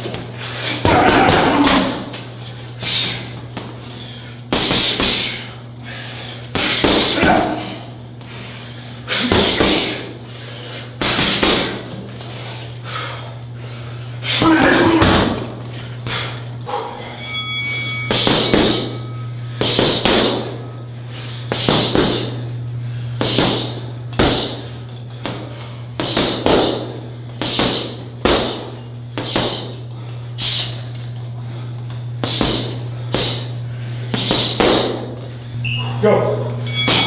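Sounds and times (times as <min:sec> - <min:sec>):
punches thudding on heavy bag: 0:00.0 - 0:02.2, 0:04.5 - 0:05.4, 0:06.5 - 0:07.8, 0:09.2 - 0:10.1, 0:11.0 - 0:12.1, 0:14.2 - 0:16.2, 0:18.1 - 0:19.0, 0:19.6 - 0:20.6, 0:21.5 - 0:22.4, 0:23.2 - 0:29.8, 0:32.2 - 0:33.5, 0:34.1 - 0:35.2
low steady hum: 0:00.0 - 0:37.0.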